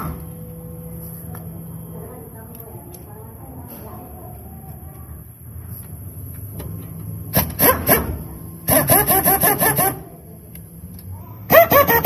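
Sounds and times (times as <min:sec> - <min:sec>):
impact wrench hammering: 0:07.4 - 0:10.0.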